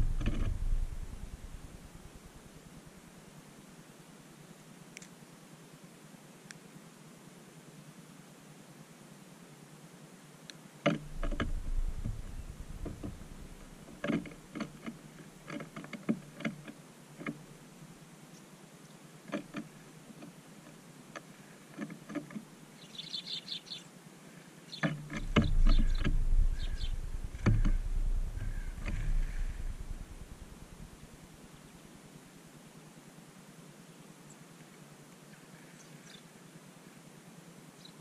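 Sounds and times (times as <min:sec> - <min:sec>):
wind buffeting microphone: 0:00.0 - 0:02.5, 0:11.0 - 0:14.0, 0:25.0 - 0:31.7
small clicks and ticks: 0:10.5 - 0:17.4
high bird chirping: 0:24.7 - 0:31.8.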